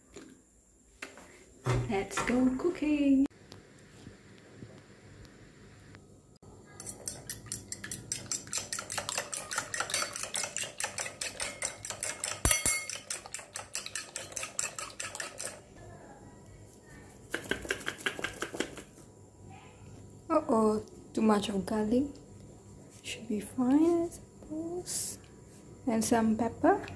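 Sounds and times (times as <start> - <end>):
fork whisking eggs in bowl: 6.8 - 15.7, 17.3 - 18.9.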